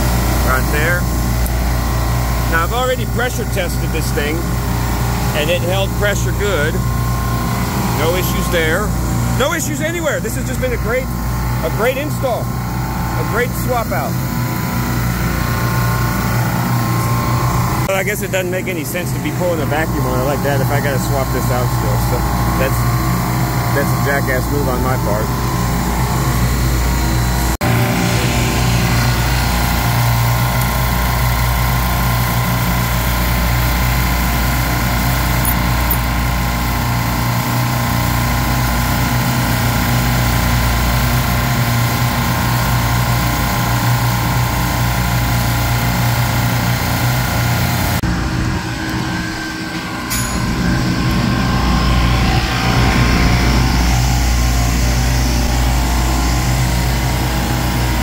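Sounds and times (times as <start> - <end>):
refrigeration machinery drone: 0.0 - 58.0.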